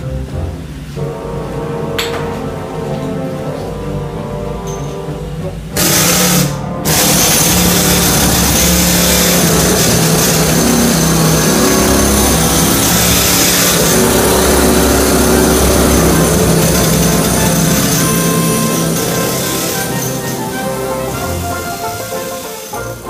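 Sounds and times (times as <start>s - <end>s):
power chipping hammer in steel drum: 5.8s - 20.5s.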